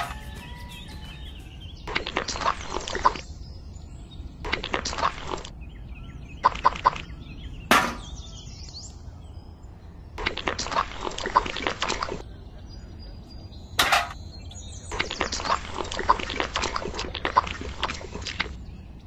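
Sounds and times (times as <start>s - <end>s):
faint bird chirps: 0.0s - 4.4s, 12.2s - 15.7s.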